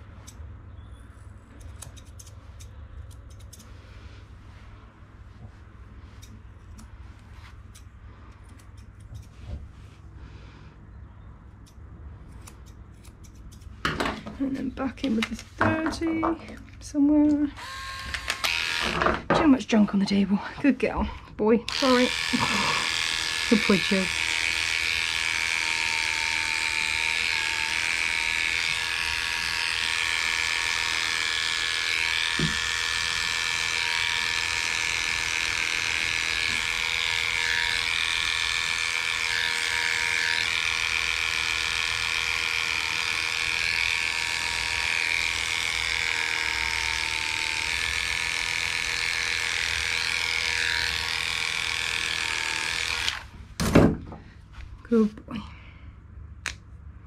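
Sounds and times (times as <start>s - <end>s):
dog clippers buzzing: 17.6s - 19.3s, 21.7s - 53.3s.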